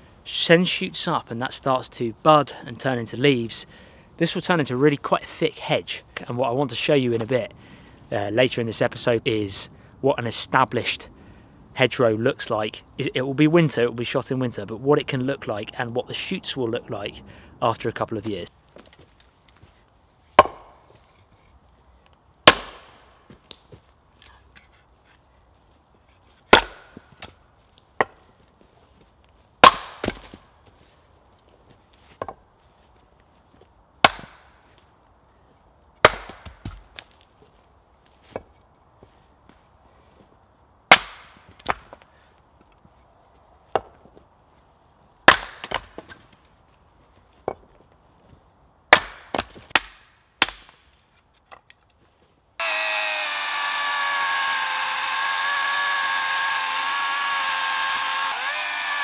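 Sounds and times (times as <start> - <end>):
axe chopping wood: 20.4 - 20.8, 22.4 - 23.6, 26.5 - 27.4, 29.6 - 30.4, 34.0 - 34.5, 36.0 - 37.1, 40.9 - 42.0, 45.3 - 46.2, 48.9 - 50.8
chainsaw cutting log: 22.5 - 22.9, 26.5 - 27.0, 29.6 - 30.4, 52.6 - 59.0.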